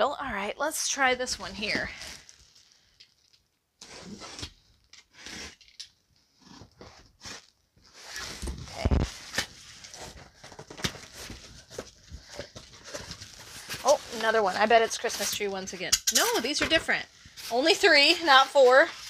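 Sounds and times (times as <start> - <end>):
cardboard scraping and rustling: 6.4 - 15.5.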